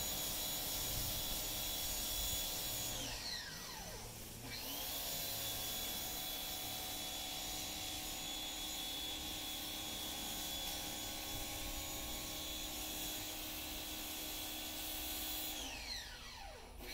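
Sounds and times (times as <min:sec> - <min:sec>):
motor whine: 0:00.0 - 0:13.4.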